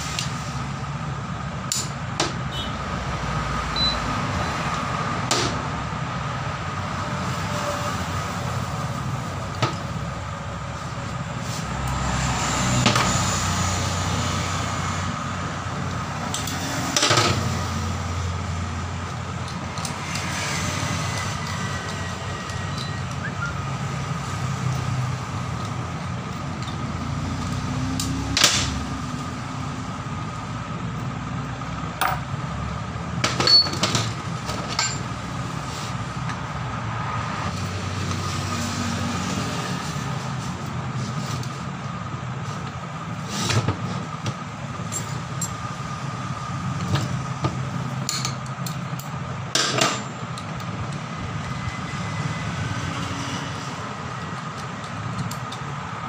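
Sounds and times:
metal tools clicking on housing: 54.4s - 55.7s.

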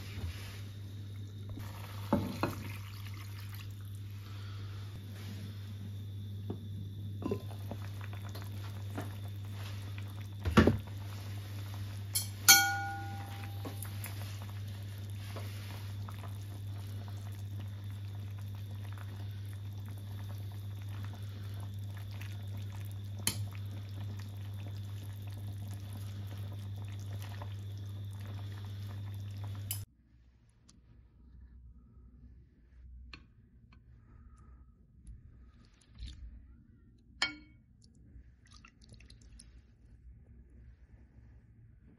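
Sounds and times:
steady low hum: 0.0s - 41.9s
ringing clink: 12.2s - 13.6s.

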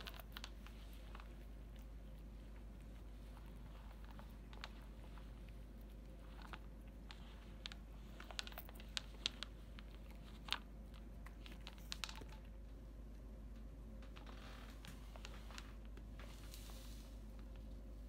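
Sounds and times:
cat crunching treats: 0.0s - 12.7s.

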